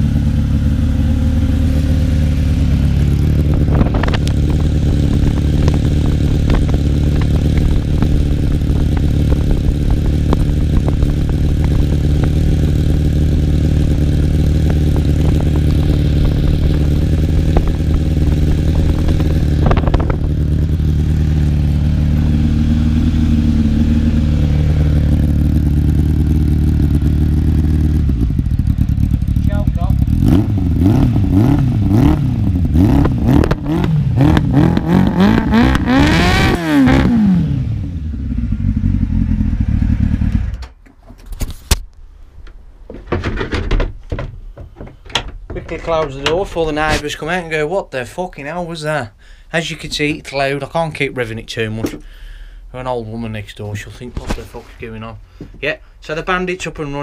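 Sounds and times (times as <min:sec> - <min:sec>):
motorcycle engine idling: 0:00.0 - 0:32.8, 0:37.7 - 0:40.6.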